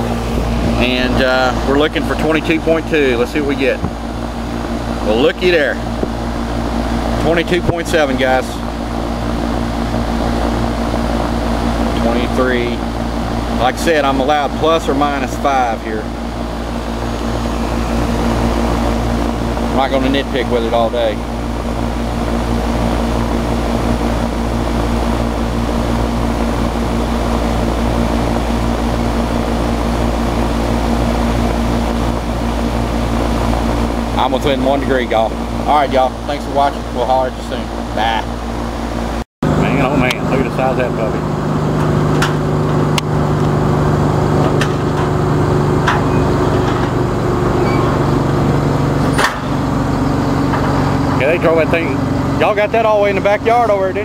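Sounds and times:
constant low hum: 0.0 - 54.0
fan blowing air: 0.0 - 54.0
diesel truck engine idling: 39.5 - 54.0.

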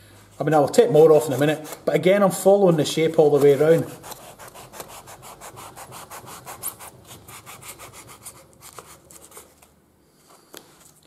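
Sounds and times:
knife sawing rasping strokes: 1.0 - 9.5.

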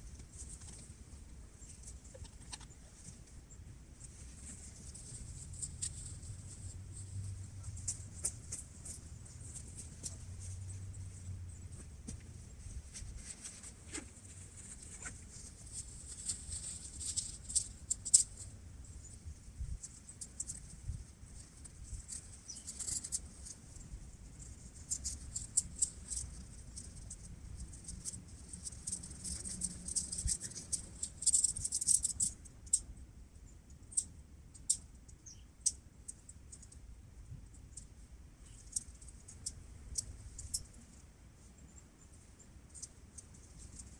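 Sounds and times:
crinkly fabric rustling: 4.0 - 17.7.

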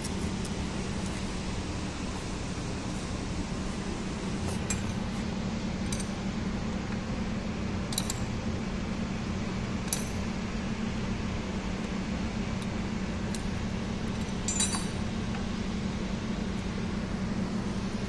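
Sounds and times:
steady low hum: 0.0 - 18.0
light metallic clinks of spanner: 14.2 - 15.0.

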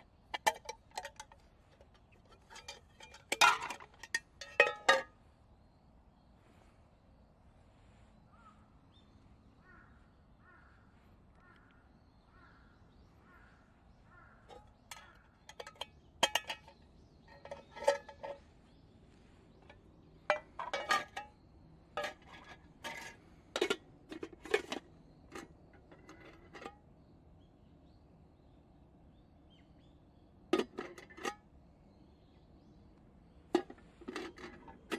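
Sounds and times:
metal handle clinking on pot: 0.3 - 5.1, 14.5 - 18.4, 19.6 - 21.4, 22.0 - 26.8, 30.6 - 31.4, 33.5 - 34.9.

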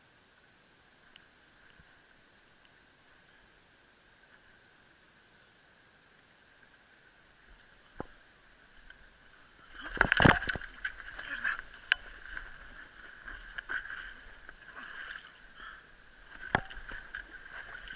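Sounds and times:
water sloshing against rocks: 7.4 - 17.9
knocks and scrapes on rocks: 9.8 - 15.3, 16.3 - 17.9.

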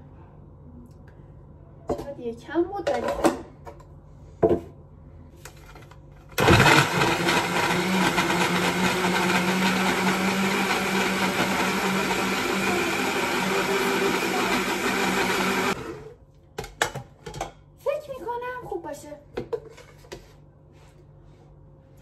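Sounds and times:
blender running: 6.4 - 16.2.

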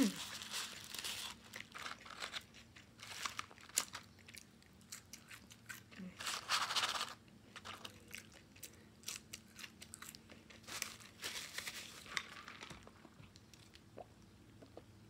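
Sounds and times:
crinkling rustle: 0.0 - 4.2, 6.2 - 8.3, 10.3 - 13.8
chewing french fries: 0.0 - 11.2.

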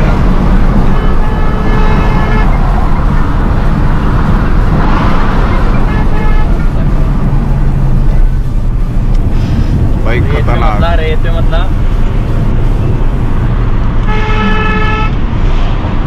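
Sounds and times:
car horn: 0.0 - 3.3, 4.8 - 7.0, 14.0 - 15.2
car interior engine and road noise: 0.0 - 16.0.

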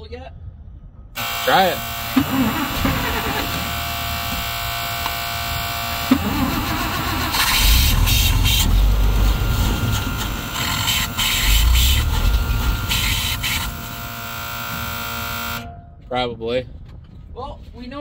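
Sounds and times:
truck engine cranking: 1.2 - 15.7.

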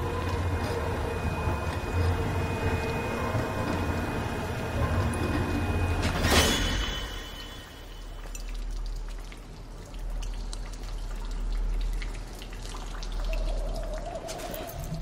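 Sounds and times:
water dripping: 7.4 - 15.0.

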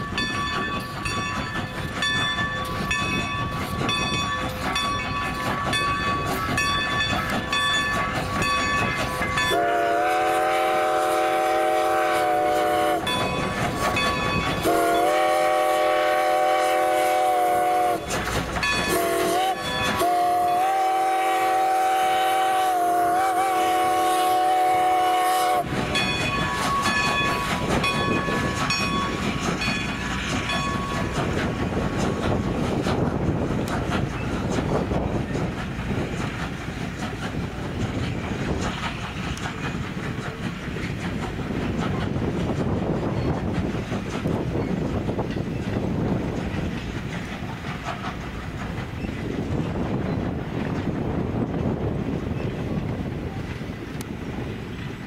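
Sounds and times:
train running: 0.0 - 55.0
steam whistle blasts: 9.5 - 13.1, 14.6 - 18.2, 18.9 - 25.7.

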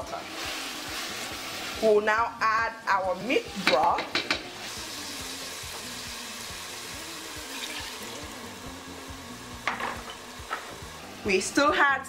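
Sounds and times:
sizzling: 0.0 - 12.0
liquid pouring into pot: 7.4 - 8.6.

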